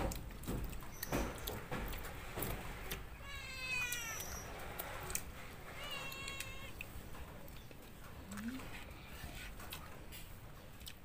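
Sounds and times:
cat meowing: 3.1 - 4.6, 5.6 - 6.9.

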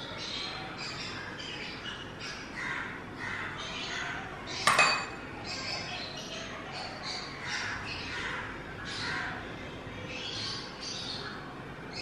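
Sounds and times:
birds calling: 0.0 - 12.0
sharp clink: 4.7 - 5.3.

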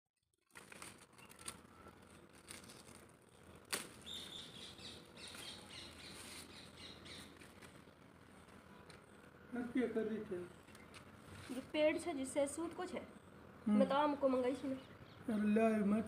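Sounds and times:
rustling leaves and twigs: 0.4 - 9.0, 10.6 - 11.8.

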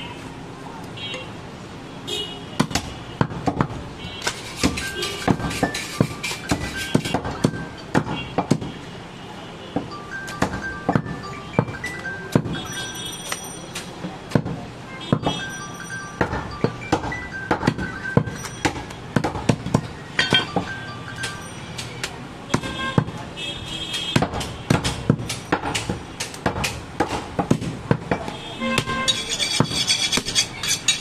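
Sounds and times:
cleaver chopping on wooden block: 2.6 - 8.7, 16.2 - 20.7, 22.0 - 23.2, 23.9 - 30.4
light chime-like music: 9.9 - 14.0, 15.2 - 19.2, 19.8 - 22.4.

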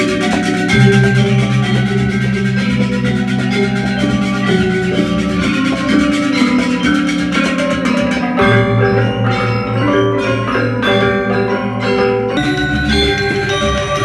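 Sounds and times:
repeating low beat: 0.0 - 10.5
metallophones ringing: 0.0 - 14.0.

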